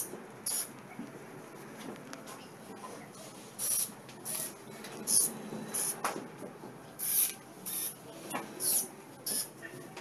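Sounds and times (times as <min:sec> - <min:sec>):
servo motors whirring: 0:07.0 - 0:08.0, 0:08.6 - 0:09.5.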